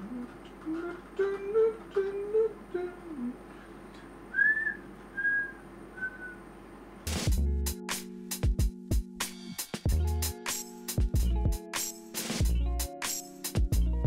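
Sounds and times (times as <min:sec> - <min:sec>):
man humming: 0:00.0 - 0:03.5
man whistling short notes: 0:04.3 - 0:06.4.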